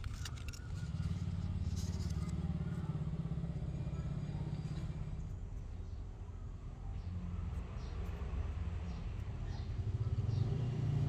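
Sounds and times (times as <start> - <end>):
light rustle: 0.0 - 2.8
vehicle engine rumbling: 0.0 - 11.0.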